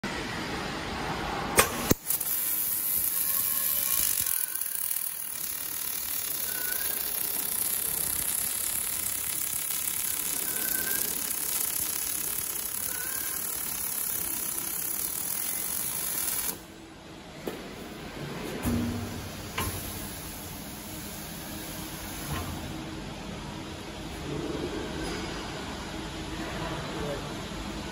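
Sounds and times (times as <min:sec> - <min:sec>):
welding arc hissing: 0:01.6 - 0:16.7, 0:19.0 - 0:22.7.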